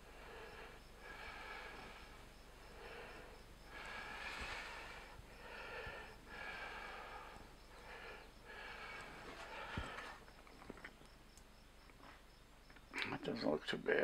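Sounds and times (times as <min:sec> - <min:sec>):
man breathing through nose: 0:00.0 - 0:10.4.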